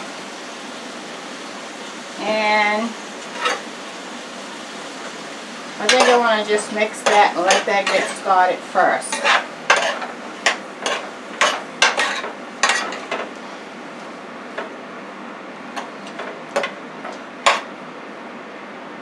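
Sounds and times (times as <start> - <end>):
vegetables sizzling: 0.0 - 18.0
metal spoon scraping a skillet: 5.8 - 8.3, 9.0 - 13.3.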